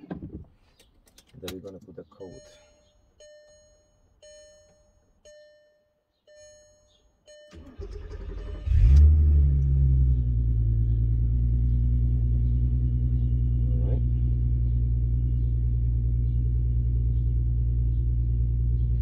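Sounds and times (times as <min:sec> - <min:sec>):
dashboard warning chime: 0:02.1 - 0:07.9
car engine starting and idling: 0:07.3 - 0:19.0.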